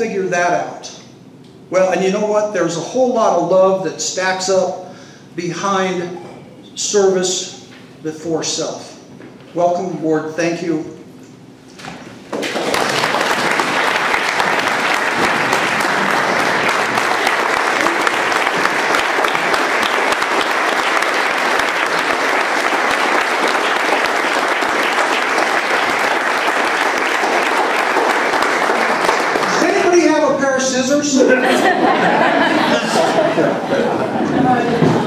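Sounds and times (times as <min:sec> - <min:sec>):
audience applauding: 0:12.3 - 0:30.2.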